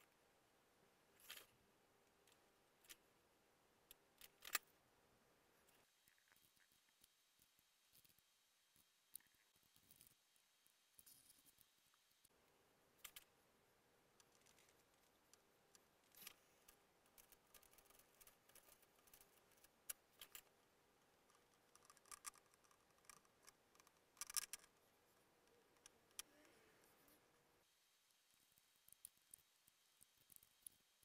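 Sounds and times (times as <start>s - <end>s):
gloved hands clicking and crinkling: 28.2s - 31.0s.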